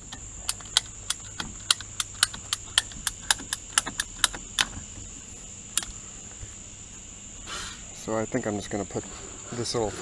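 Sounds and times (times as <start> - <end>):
ratcheting pipe cutter clicking: 0.0 - 4.8.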